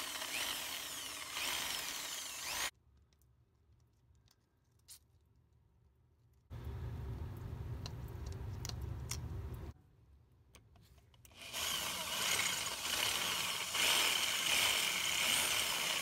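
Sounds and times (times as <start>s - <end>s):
power drill whining into metal: 0.0s - 2.7s
low rumble with clicks: 6.5s - 9.8s.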